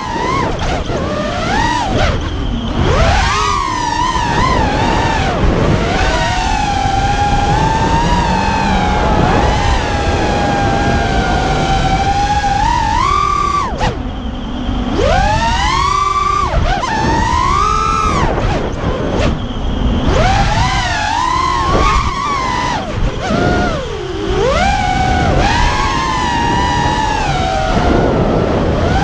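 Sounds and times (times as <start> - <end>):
drone motors buzzing whine: 0.0 - 29.0
wind rumble: 0.0 - 29.0.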